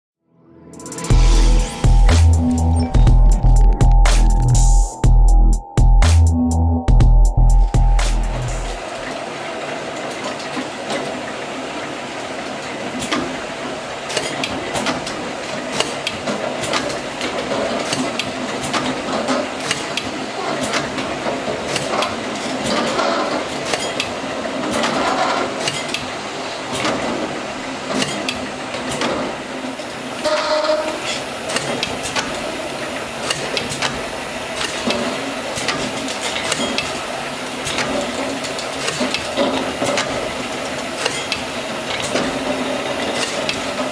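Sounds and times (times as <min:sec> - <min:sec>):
machine humming: 0:00.6 - 0:14.0.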